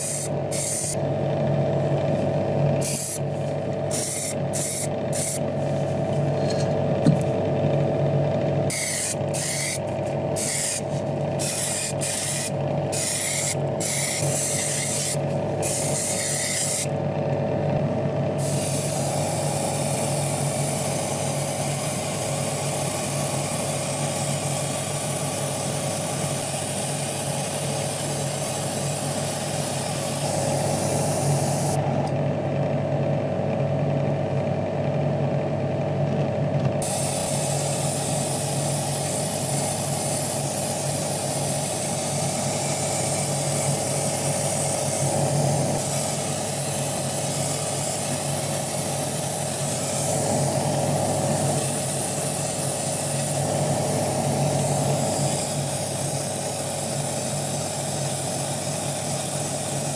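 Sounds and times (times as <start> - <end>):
paint spray hissing: 0.0 - 1.0, 2.8 - 3.2, 3.9 - 5.4, 8.7 - 9.8, 10.4 - 16.9, 18.4 - 31.8, 36.8 - 45.1, 45.8 - 50.1, 51.6 - 53.4, 54.7 - 59.9
motor hum: 0.0 - 56.5.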